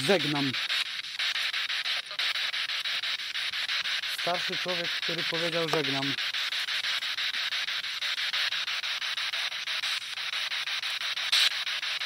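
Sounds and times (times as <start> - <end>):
choppy radio static hiss: 0.0 - 12.0
radio static crackle: 0.0 - 12.0.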